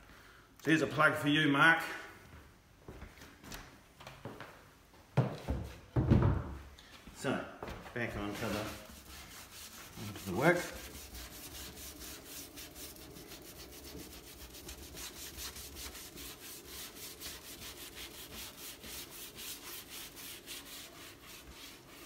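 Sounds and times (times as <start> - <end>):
scrubbing brush on wet wood: 8.0 - 22.0.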